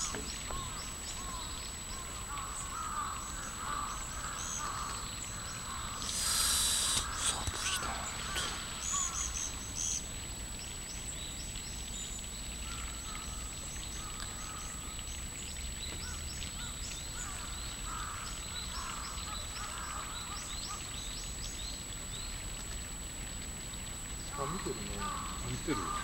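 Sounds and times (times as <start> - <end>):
lower bird calls: 0.0 - 10.2
birds chirping: 0.0 - 14.9, 24.2 - 26.0.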